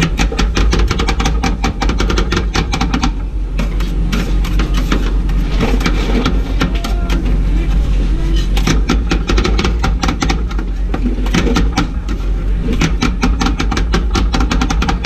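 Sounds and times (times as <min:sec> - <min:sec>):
steady low hum: 0:00.0 - 0:15.0
metal spatulas chopping ice cream: 0:08.4 - 0:15.0.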